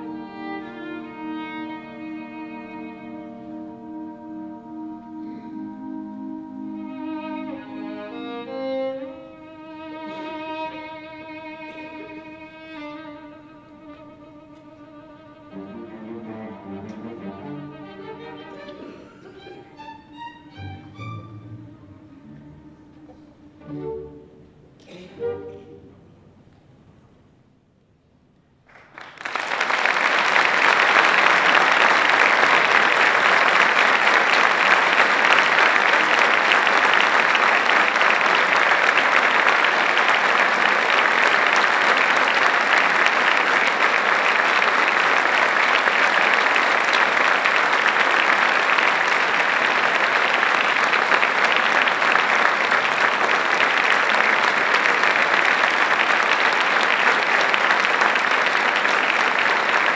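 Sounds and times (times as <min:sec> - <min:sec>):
audience applause: 0:15.5 - 0:20.2, 0:28.6 - 0:59.9.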